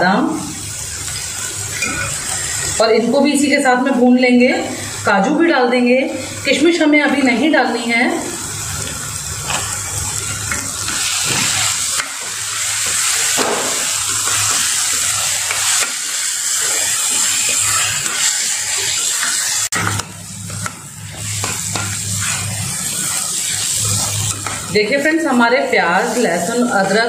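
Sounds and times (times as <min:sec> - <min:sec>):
food sizzling in a pan: 0:00.0 - 0:27.0
spoon stirring and scraping pan: 0:08.8 - 0:27.0.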